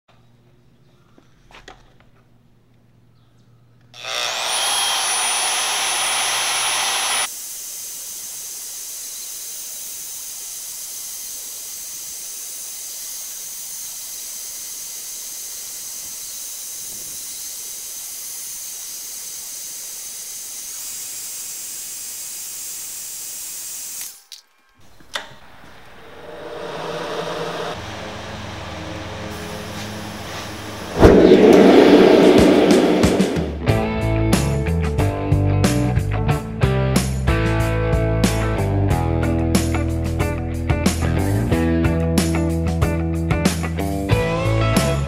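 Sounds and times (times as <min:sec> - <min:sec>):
band saw cutting steel: 0:04.0 - 0:23.4, 0:25.2 - 0:33.7.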